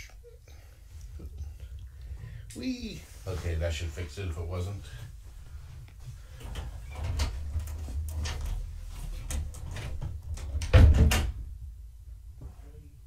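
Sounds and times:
door shutting with a thud: 9.2s - 11.6s.

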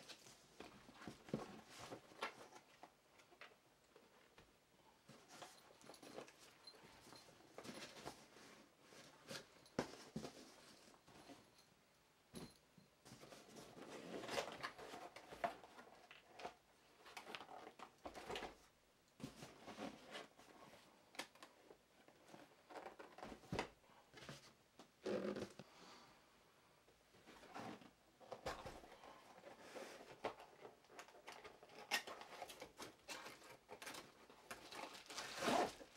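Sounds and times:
cardboard boxes scraping and knocking: 7.2s - 11.4s, 32.4s - 35.9s.

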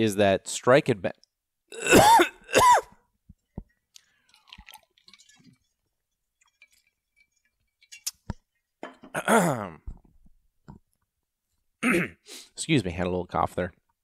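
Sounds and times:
man coughing: 1.8s - 3.0s, 9.1s - 9.8s, 11.8s - 12.3s.

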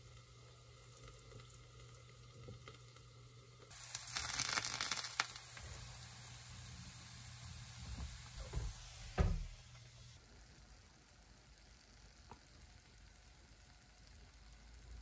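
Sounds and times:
food sizzling in a frying pan: 0.0s - 15.0s
sharp crackles: 3.7s - 5.6s.

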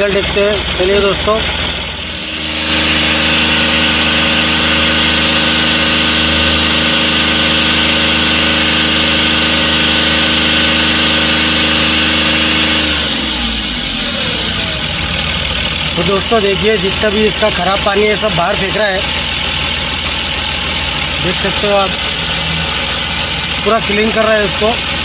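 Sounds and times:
diesel engine running: 0.0s - 25.0s.

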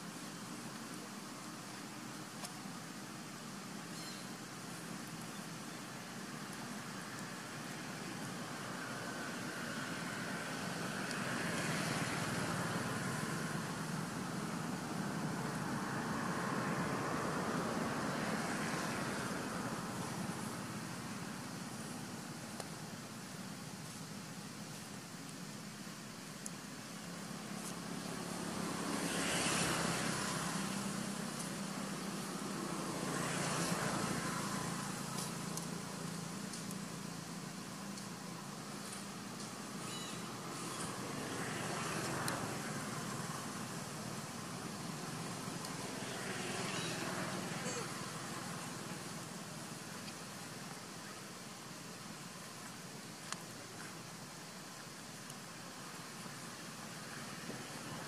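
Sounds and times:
rushing outdoor background noise: 0.0s - 58.0s.

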